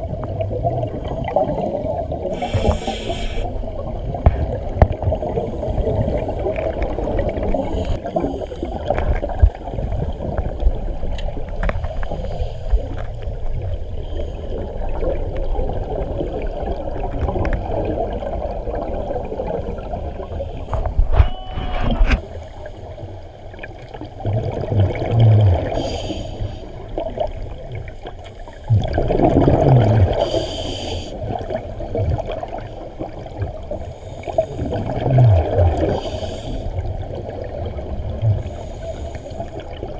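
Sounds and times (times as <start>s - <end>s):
diver's exhaled bubbles underwater: 0.0s - 12.0s, 23.6s - 26.0s, 26.8s - 30.6s, 31.2s - 38.8s.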